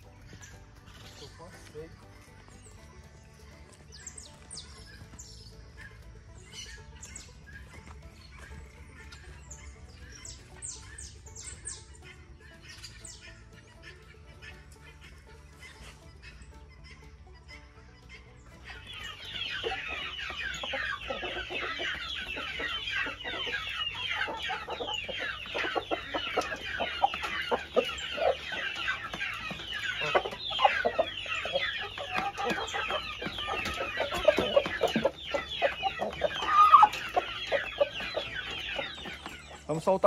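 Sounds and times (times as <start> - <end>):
young chickens clucking and cheeping: 0.0 - 40.0
loud chicken call: 18.7 - 39.6.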